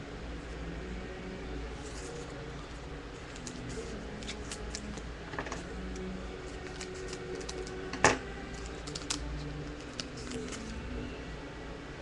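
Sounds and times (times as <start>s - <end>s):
card packs being handled: 3.2s - 5.7s, 6.4s - 10.8s.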